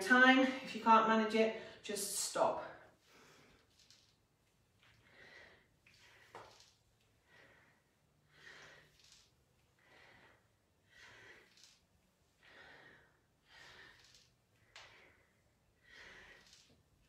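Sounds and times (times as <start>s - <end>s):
person breathing rhythmically: 4.8s - 16.8s.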